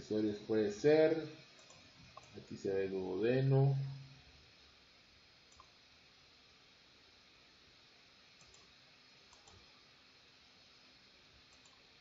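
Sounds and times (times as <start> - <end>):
faint computer mouse clicks: 1.6 - 2.4, 5.5 - 5.8, 8.4 - 8.7, 9.3 - 9.7, 11.5 - 11.9.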